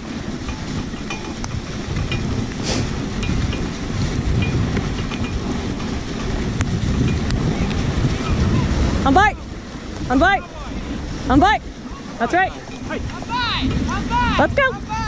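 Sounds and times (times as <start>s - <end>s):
light ticks and rattles: 0.0s - 8.0s
sled runners scraping on snow: 0.0s - 15.0s.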